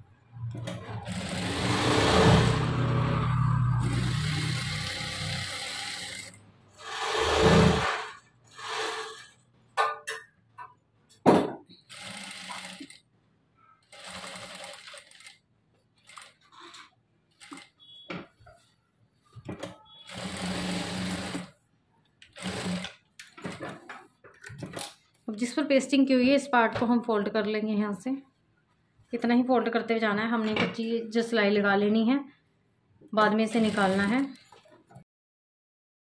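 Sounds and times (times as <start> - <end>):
sewing machine stitching: 0.4 - 3.1, 3.8 - 9.4, 11.8 - 13.0, 13.8 - 15.4, 16.0 - 18.1, 19.6 - 21.6, 22.3 - 23.9, 33.3 - 34.8.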